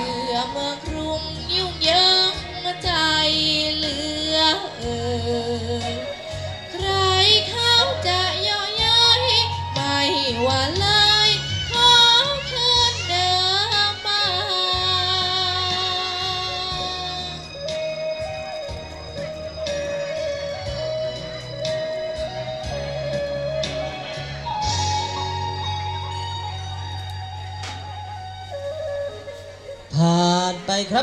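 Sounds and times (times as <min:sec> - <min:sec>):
girl singing into a microphone: 0:00.0 - 0:17.4
backing track with bass: 0:00.0 - 0:31.0.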